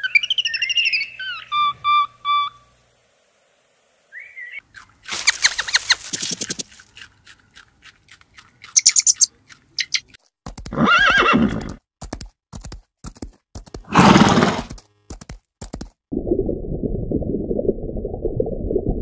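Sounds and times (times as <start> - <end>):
hoofbeats clicking: 5.4 - 16.0
horses neighing: 10.7 - 11.8.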